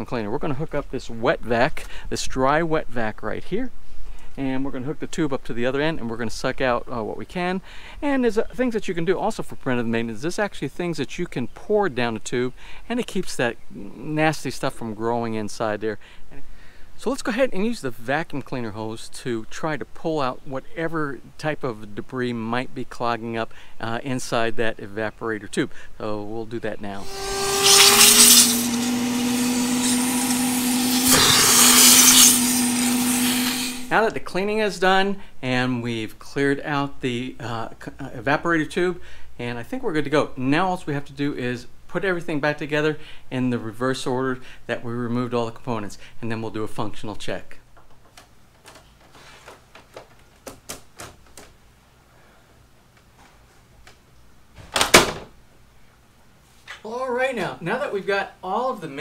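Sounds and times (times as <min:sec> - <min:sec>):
air rushing through hose: 0:27.0 - 0:33.9
shop vacuum motor whine: 0:27.0 - 0:33.9.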